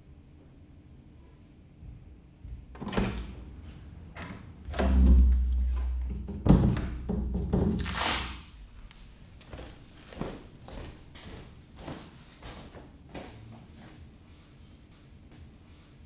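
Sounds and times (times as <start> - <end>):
door opening: 2.5 - 8.7
knocks and thuds: 4.2 - 7.9.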